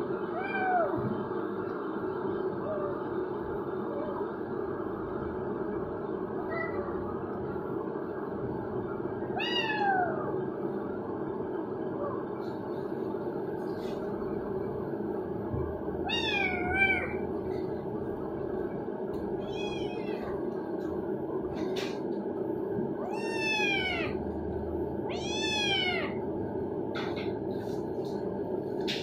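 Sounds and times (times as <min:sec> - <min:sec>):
steady low hum: 0:00.0 - 0:29.0
kitten meowing: 0:19.4 - 0:20.3, 0:23.0 - 0:24.2.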